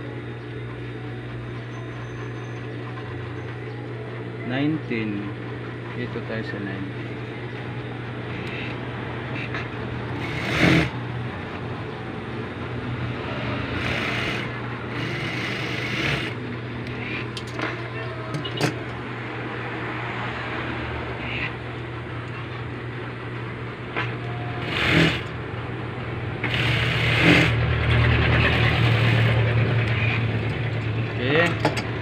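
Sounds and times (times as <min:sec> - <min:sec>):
steady low hum: 0:00.0 - 0:32.0
sewing machine stitching: 0:10.2 - 0:10.9, 0:24.6 - 0:25.3, 0:26.4 - 0:29.4.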